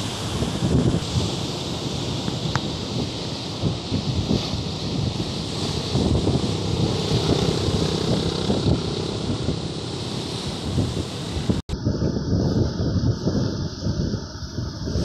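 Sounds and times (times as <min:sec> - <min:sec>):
surf breaking on seawall: 0:00.0 - 0:11.6
storm wind buffeting microphone: 0:00.0 - 0:15.0.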